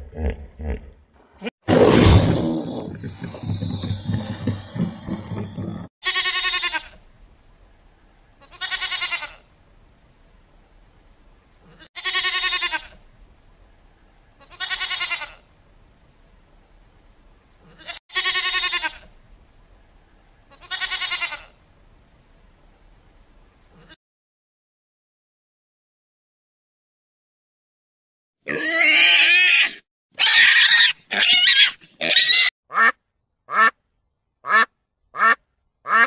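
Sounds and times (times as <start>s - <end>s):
goats bleating: 3.1s - 7.0s, 8.4s - 9.4s, 11.7s - 13.0s, 14.4s - 15.4s, 17.7s - 19.1s, 20.5s - 21.5s.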